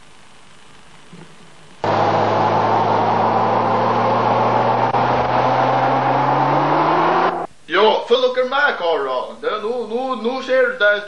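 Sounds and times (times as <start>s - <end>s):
car engine at high revs: 1.8s - 7.5s.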